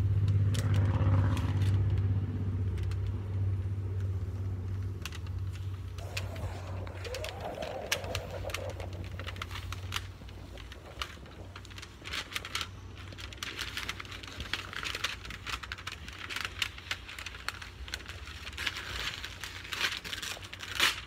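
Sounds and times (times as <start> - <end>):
low hum: 0.0 - 15.0
tape peeling off surface: 0.3 - 21.0.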